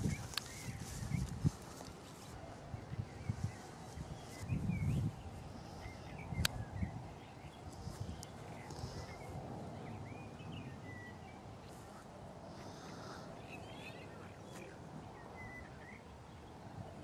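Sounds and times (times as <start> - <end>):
small birds chirping: 0.0 - 17.0
steady low background noise: 0.0 - 17.0.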